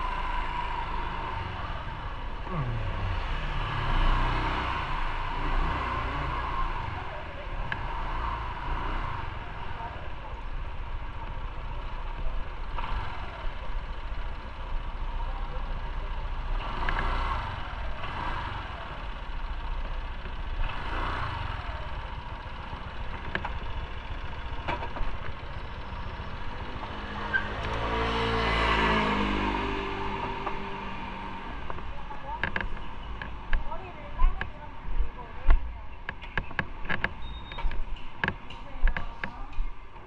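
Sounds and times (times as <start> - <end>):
low traffic rumble: 0.0 - 40.0
motor vehicle engine: 0.0 - 40.0
vehicles passing: 0.0 - 40.0.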